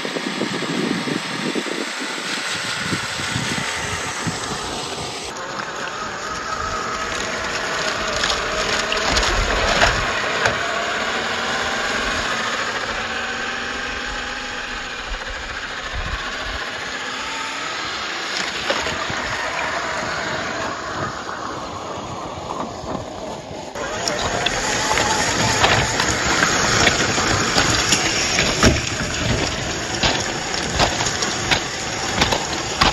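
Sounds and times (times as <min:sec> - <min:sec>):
electric motor and gearbox whining: 0:00.0 - 0:32.9
sharp knocks from chassis: 0:26.8 - 0:32.9.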